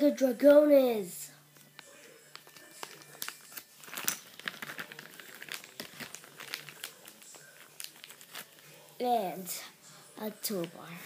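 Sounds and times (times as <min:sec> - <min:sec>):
plastic bag crinkling: 0:01.6 - 0:08.9.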